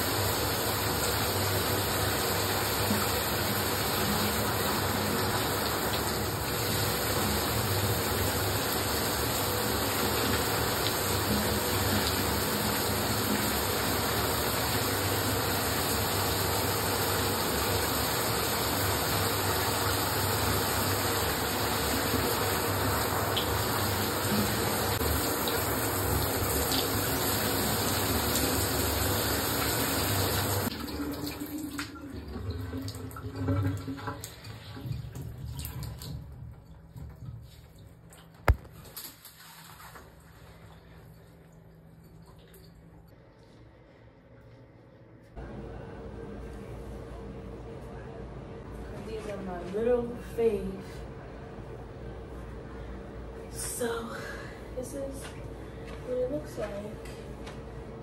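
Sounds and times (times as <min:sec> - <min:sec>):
water running: 0:00.0 - 0:43.2.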